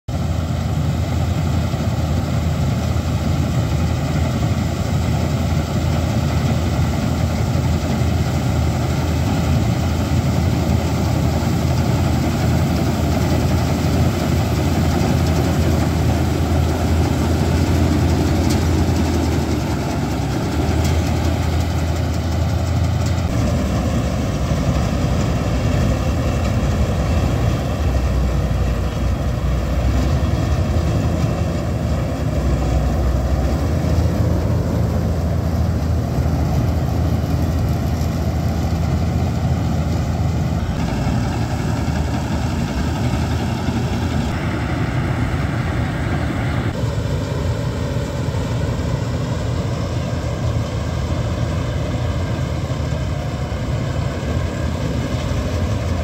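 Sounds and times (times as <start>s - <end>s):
combine harvester engine droning: 0.1s - 56.0s.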